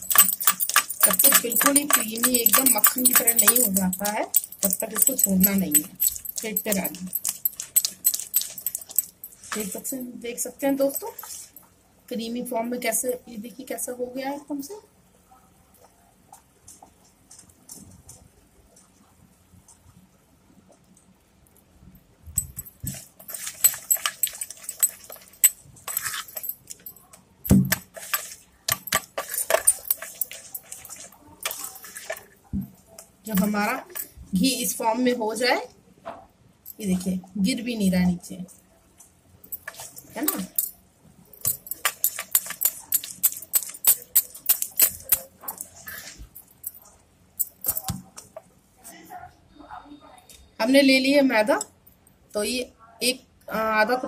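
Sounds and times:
metal bangles clinking: 0.0s - 11.7s, 22.3s - 34.8s, 39.4s - 48.4s.

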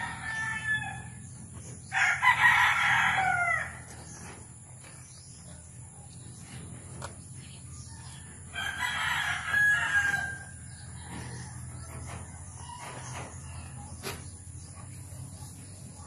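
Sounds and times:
rooster crowing: 0.0s - 1.2s, 1.9s - 3.9s, 8.0s - 11.9s.

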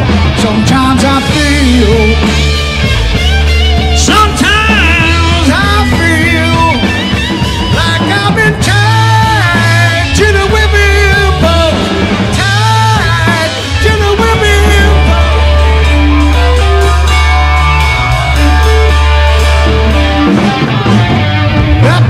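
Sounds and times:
bass guitar: 0.0s - 22.0s
drums: 0.0s - 22.0s
electric guitar solo: 0.0s - 22.0s.

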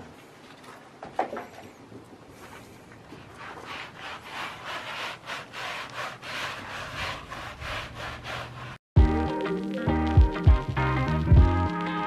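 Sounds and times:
rubber gloves scrubbing goat coat: 2.6s - 8.8s.

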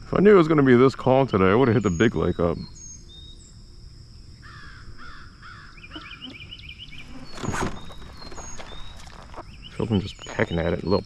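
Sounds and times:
caw-like bird calls: 4.4s - 8.9s
high bird chirps: 4.4s - 11.0s.

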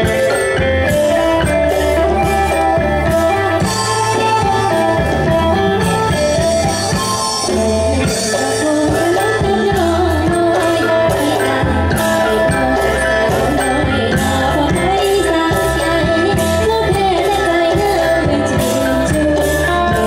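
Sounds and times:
folk ensemble playing dance music: 0.0s - 20.0s.

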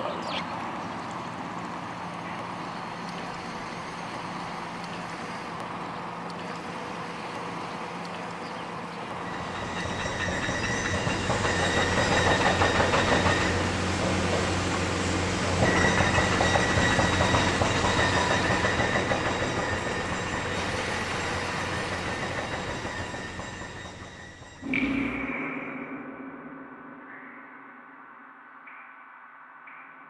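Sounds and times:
train wheels clattering on rails: 1.6s - 25.2s.

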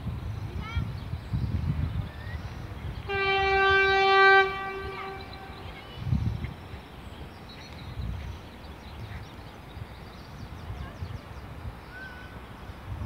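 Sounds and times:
locomotive horn blast: 3.0s - 6.0s.

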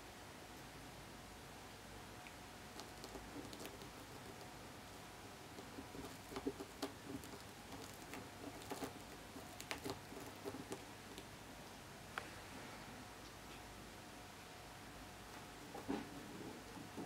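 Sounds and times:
kitten pawing with small clicks: 2.2s - 4.5s, 5.6s - 11.3s.

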